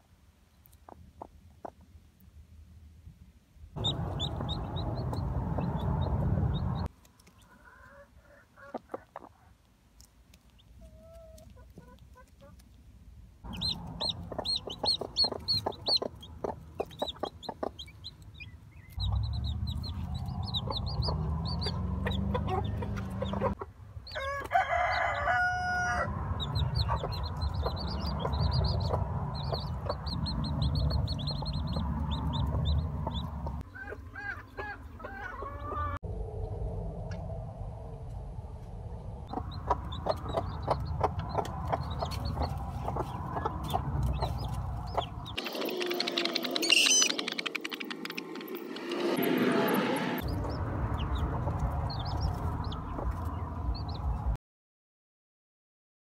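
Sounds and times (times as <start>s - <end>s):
hens clucking: 3.8s - 9.6s, 13.5s - 23.7s, 26.4s - 36.0s, 39.3s - 48.2s
chicks peeping: 3.8s - 12.8s, 13.4s - 36.0s, 39.2s - 48.2s, 50.2s - 54.4s.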